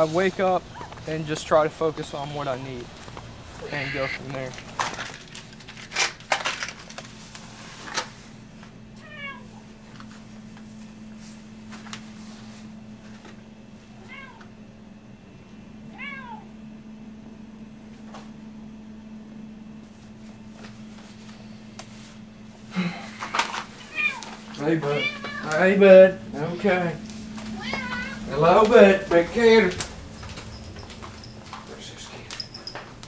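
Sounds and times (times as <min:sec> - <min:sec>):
steady low hum: 0:00.0 - 0:06.2, 0:06.8 - 0:33.0
cat meowing: 0:03.6 - 0:04.2, 0:09.0 - 0:09.5, 0:14.0 - 0:14.5, 0:15.9 - 0:16.5, 0:23.8 - 0:25.6, 0:27.5 - 0:28.4.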